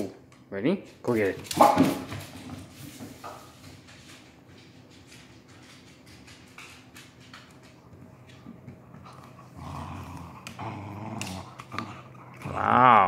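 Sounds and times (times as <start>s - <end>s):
dog claws clicking on wooden floor: 3.2s - 12.5s
dog growling playfully: 9.1s - 13.0s.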